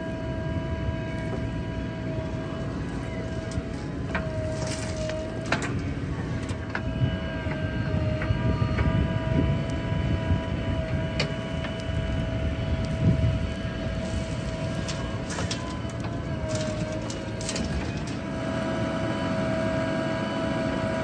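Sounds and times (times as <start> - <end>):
diesel engine under load: 0.0 - 21.0.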